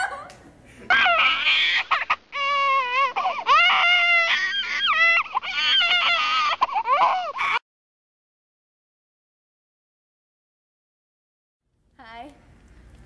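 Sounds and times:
girl wailing and sobbing: 0:00.9 - 0:07.6.

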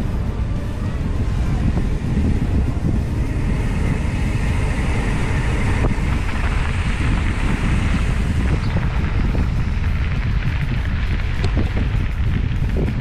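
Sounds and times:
bike tyres rumbling on dirt: 0:00.0 - 0:13.0
wind buffeting microphone: 0:00.0 - 0:13.0
sharp tick: 0:09.3 - 0:13.0.

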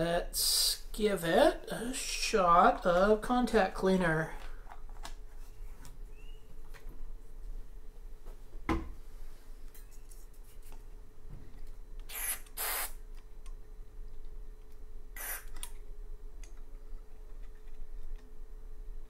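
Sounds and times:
aerosol spray hissing: 0:12.1 - 0:13.0.

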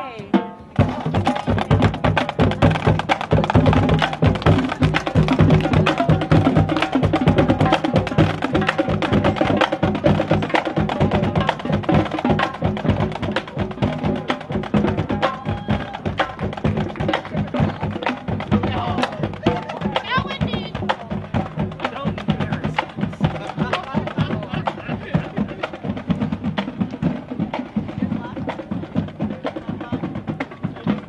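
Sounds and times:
snare drums: 0:00.0 - 0:31.0.

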